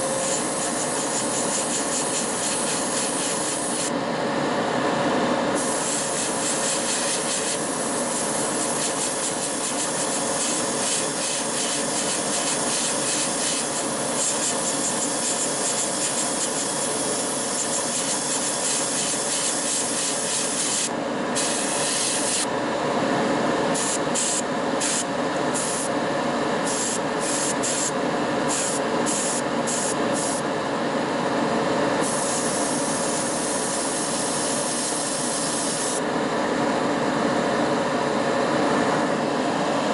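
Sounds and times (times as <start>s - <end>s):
airbrush spraying hiss: 0.0s - 3.9s, 5.6s - 22.5s, 23.8s - 25.9s, 26.6s - 27.9s, 28.5s - 30.4s, 32.0s - 36.0s.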